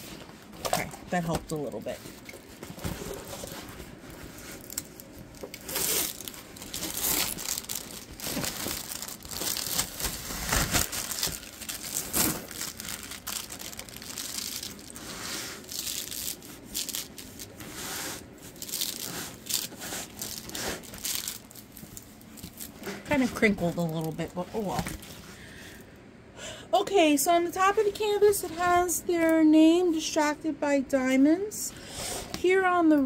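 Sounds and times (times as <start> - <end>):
plastic film crinkling and rustling: 0.0 - 25.3.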